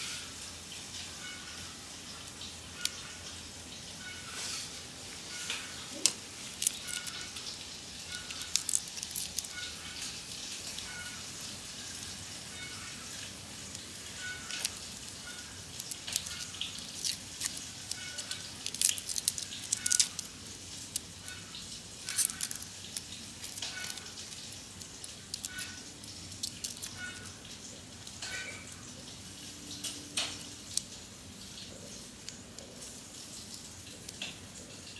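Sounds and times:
onion skins crackling: 0.4s - 34.9s.

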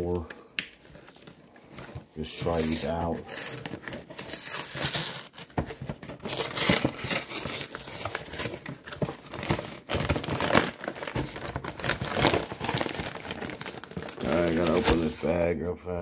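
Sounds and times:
cardboard box being torn open: 2.5s - 15.2s
plastic bag crinkling: 6.3s - 15.4s.

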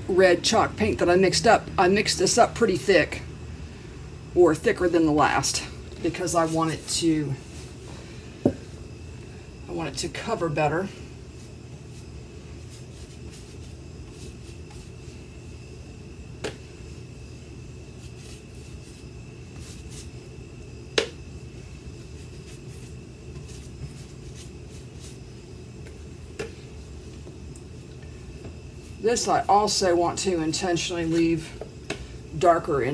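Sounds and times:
steady low hum: 0.0s - 32.9s
paintbrush strokes on wood: 11.4s - 15.3s, 18.0s - 20.2s, 22.0s - 25.4s.

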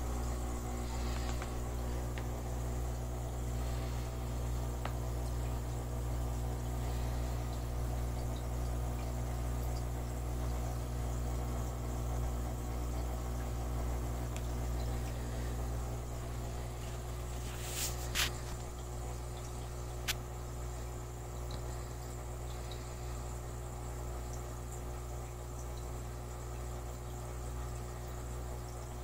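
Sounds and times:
aquarium equipment humming: 0.0s - 29.0s
faint ticks: 4.7s - 5.8s, 14.3s - 15.2s, 21.2s - 27.4s.

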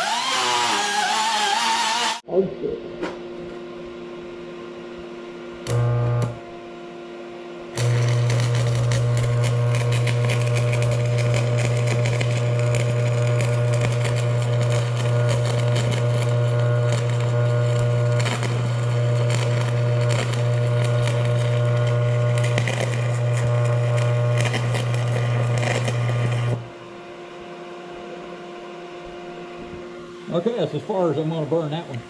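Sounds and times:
welding arc crackling: 0.0s - 2.2s, 5.6s - 6.4s, 7.8s - 26.6s
welder buzz: 0.0s - 2.3s, 4.2s - 32.0s.

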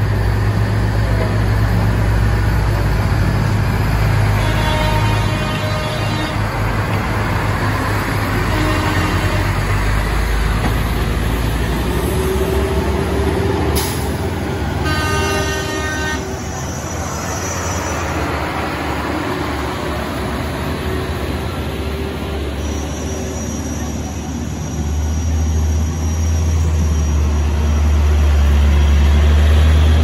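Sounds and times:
truck diesel engines labouring: 0.0s - 30.0s
truck horn: 4.3s - 6.5s, 8.4s - 9.8s, 14.8s - 16.4s.

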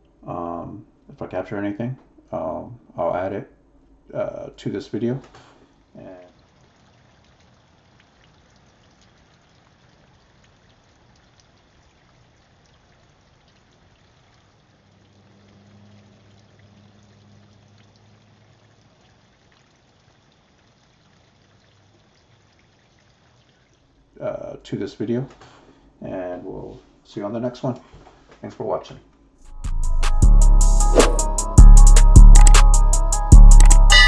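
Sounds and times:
fountain water trickling: 5.8s - 24.5s.

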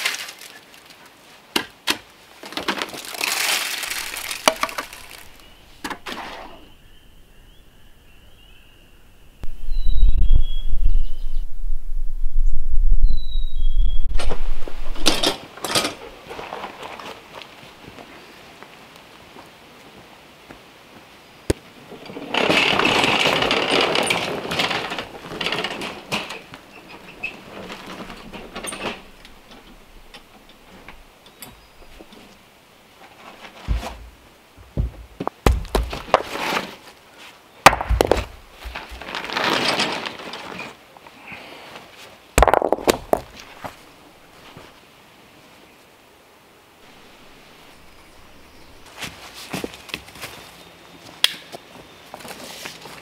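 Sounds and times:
stones thudding and knocking: 1.6s - 6.2s, 33.4s - 36.7s, 37.6s - 39.4s, 42.4s - 43.8s
rocks scraping and grinding: 2.4s - 6.6s, 16.0s - 17.4s, 21.8s - 31.0s, 33.0s - 37.0s, 37.6s - 40.8s, 42.4s - 44.7s.

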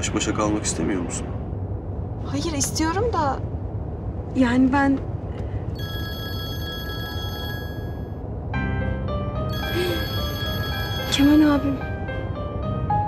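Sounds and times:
phone melodic ringtone: 5.8s - 8.2s, 9.5s - 11.8s.

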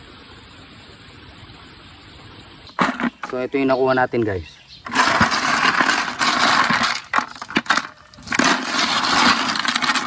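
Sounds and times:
snail shells clinking together: 4.9s - 10.0s.

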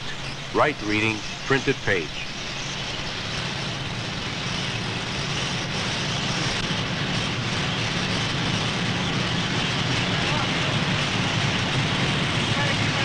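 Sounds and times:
printing presses running: 0.0s - 2.7s.

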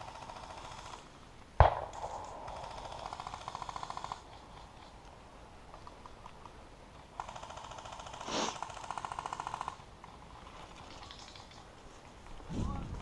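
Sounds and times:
airsoft guns firing bursts: 1.6s - 4.5s, 7.2s - 9.8s.

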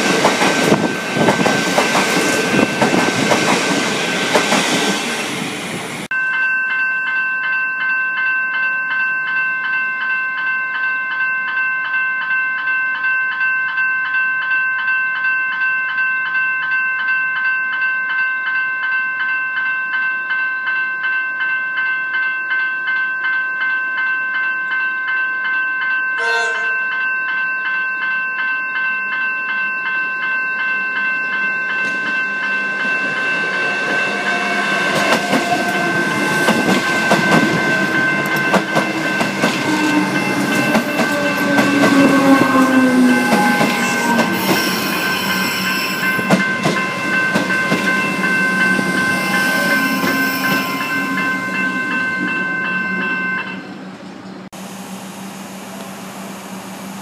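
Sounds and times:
electric train passing: 0.0s - 6.1s, 30.2s - 57.0s
level crossing bells ringing: 6.1s - 53.8s
train horn blast: 26.2s - 26.9s, 39.5s - 46.0s.

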